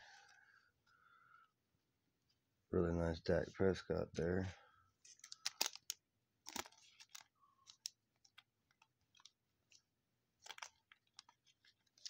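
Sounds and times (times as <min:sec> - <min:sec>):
plastic sleeve crinkling: 0:05.0 - 0:12.0.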